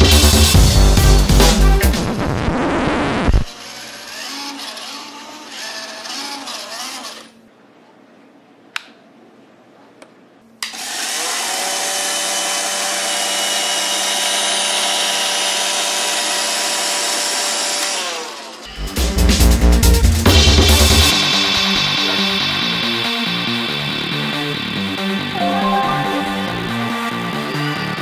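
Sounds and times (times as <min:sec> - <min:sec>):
robot vacuum motors whining: 0:03.5 - 0:07.3.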